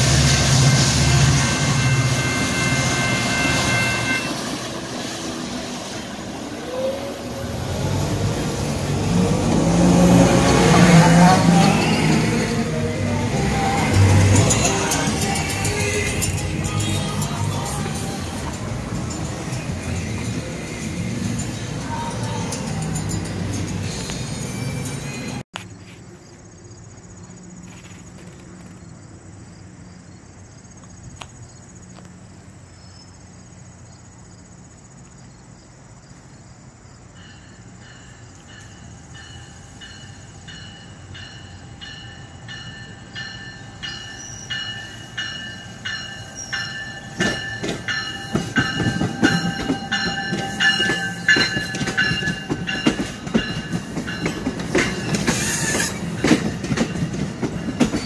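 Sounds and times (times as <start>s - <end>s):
train passing: 0.0s - 58.0s
wheels clicking over rail joints: 44.6s - 58.0s.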